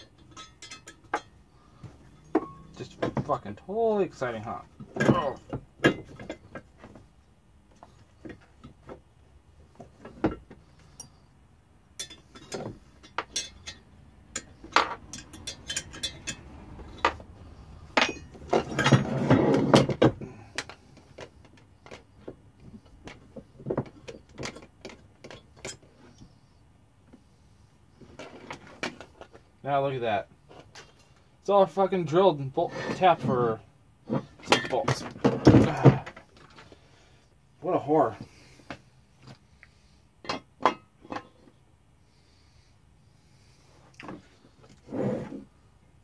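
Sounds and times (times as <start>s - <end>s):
metal parts rattling: 0.0s - 1.4s, 12.0s - 17.2s, 17.9s - 20.0s
metal tools clinking on workbench: 0.0s - 1.4s, 2.1s - 3.4s, 12.0s - 17.2s, 18.0s - 19.2s.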